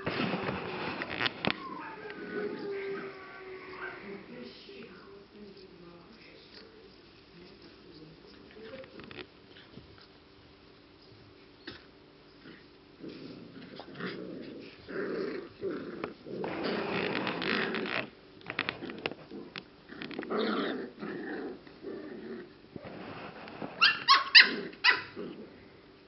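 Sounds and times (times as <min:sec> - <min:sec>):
puppies growling: 0:00.0 - 0:04.9, 0:11.6 - 0:26.0.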